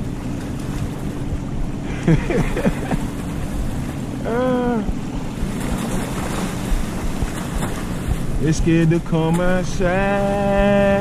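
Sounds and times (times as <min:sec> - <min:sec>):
distant motorboat drone: 0:00.0 - 0:11.0
water sloshing: 0:00.0 - 0:11.0
wind on microphone: 0:00.0 - 0:11.0
person humming: 0:04.2 - 0:05.0.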